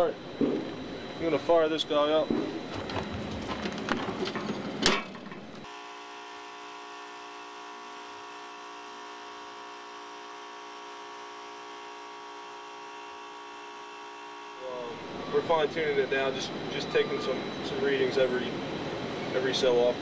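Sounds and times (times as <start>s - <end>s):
air conditioning unit humming: 0.0s - 5.7s, 14.6s - 20.0s.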